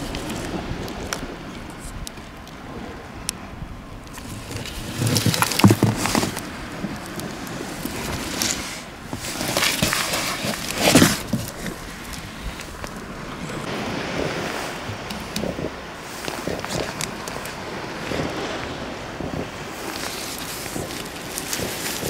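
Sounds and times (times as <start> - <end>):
paper and card rustling: 9.2 - 11.8.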